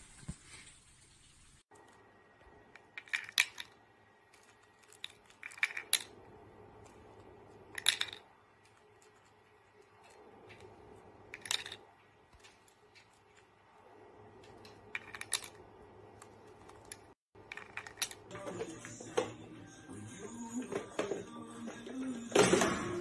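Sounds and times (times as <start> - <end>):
plastic rings clacking on toy: 2.8 - 3.8, 4.4 - 6.2, 7.6 - 10.6, 11.3 - 11.9, 14.5 - 15.6, 16.7 - 18.3.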